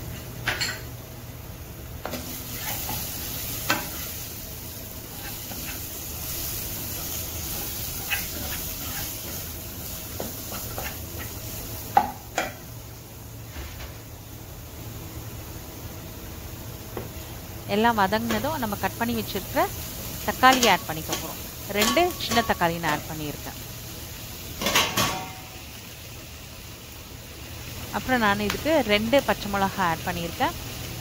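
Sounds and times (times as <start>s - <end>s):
onions sizzling in hot oil: 0.0s - 31.0s
spatula scraping a pan: 2.5s - 4.2s, 5.0s - 11.3s.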